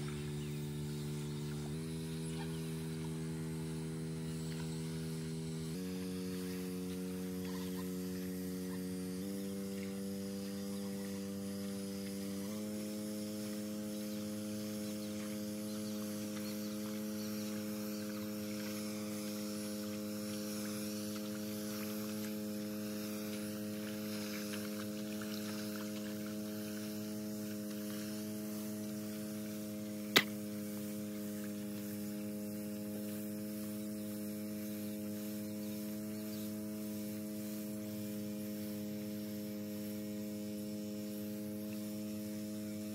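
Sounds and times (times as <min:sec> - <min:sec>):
small petrol engine running: 0:00.0 - 0:42.9
sharp click: 0:30.1 - 0:30.4.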